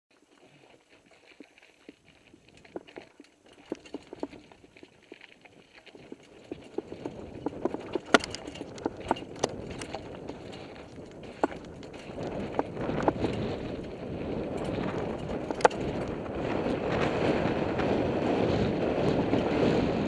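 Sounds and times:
bike clicks and knocks over rocks: 0:00.2 - 0:20.0
tyre and wind rush: 0:06.0 - 0:20.0.

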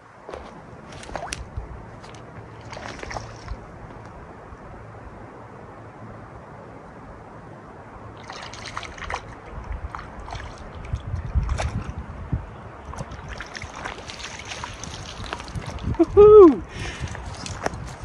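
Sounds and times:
fish splashing in water: 0:02.1 - 0:03.7, 0:08.2 - 0:12.0, 0:12.8 - 0:16.0.

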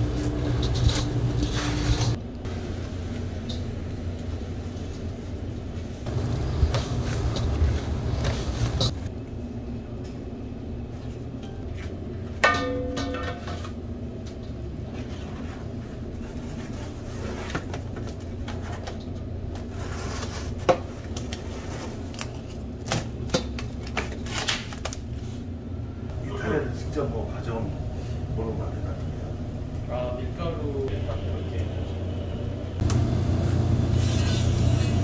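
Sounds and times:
clinks and knocks of food preparation: 0:11.4 - 0:13.8.

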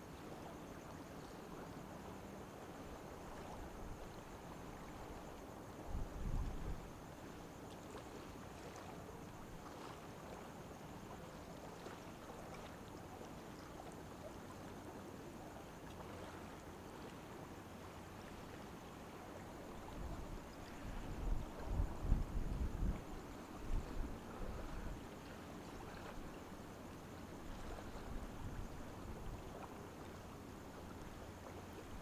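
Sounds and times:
ship and water noise: 0:00.0 - 0:32.0
wind buffeting microphone: 0:05.9 - 0:06.9, 0:19.9 - 0:25.0.

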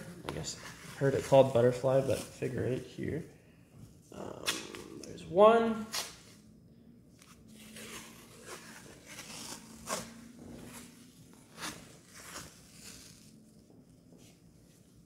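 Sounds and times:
tape peeling: 0:05.8 - 0:06.4, 0:07.2 - 0:13.6.

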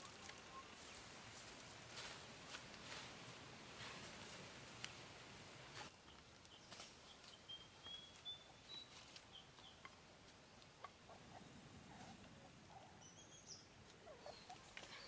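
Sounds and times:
bird chirping: 0:05.9 - 0:10.0, 0:10.7 - 0:15.0.

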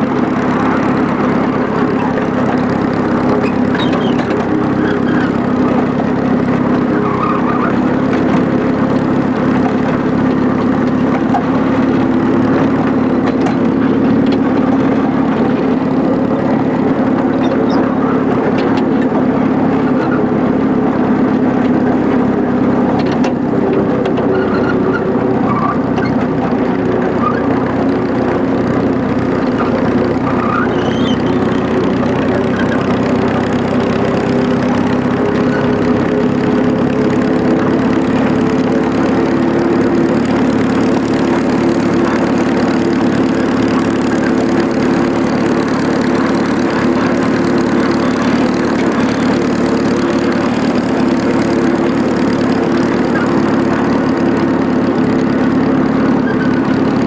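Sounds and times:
miniature locomotive engine running: 0:00.0 - 0:57.0.

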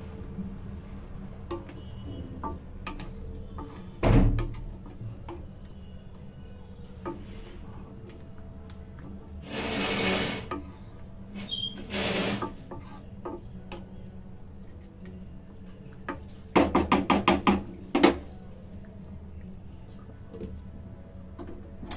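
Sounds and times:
metal spatula scraping pan: 0:09.4 - 0:13.1.

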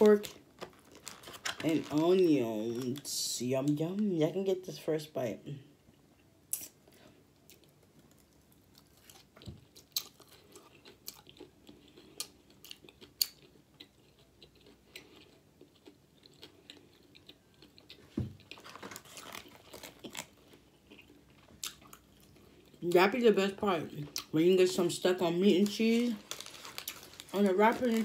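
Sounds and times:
person chewing food: 0:06.0 - 0:22.8, 0:26.2 - 0:27.4.

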